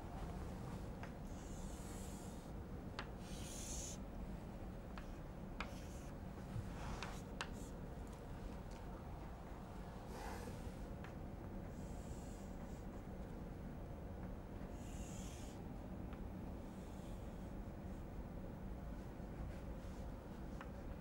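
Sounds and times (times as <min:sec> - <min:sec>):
faint room hum: 0:00.0 - 0:21.0
chalk tapping on board: 0:04.9 - 0:06.0.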